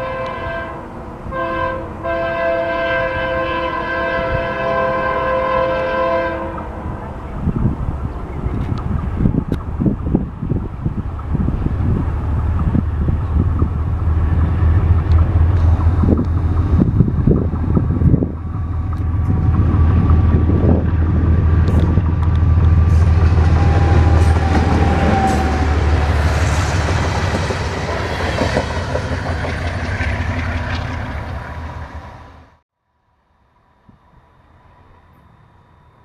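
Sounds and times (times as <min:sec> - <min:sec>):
diesel locomotive running: 0:00.0 - 0:32.6
wind buffeting microphone: 0:06.5 - 0:32.2
train wheels clattering on rail: 0:08.3 - 0:32.0.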